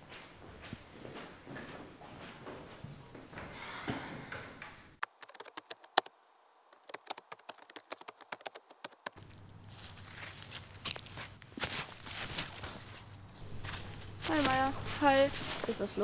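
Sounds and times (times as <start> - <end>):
low outdoor background: 4.6 - 16.0
keyboard typing clicks: 5.0 - 6.1, 6.8 - 9.2
rustles: 5.3 - 16.0.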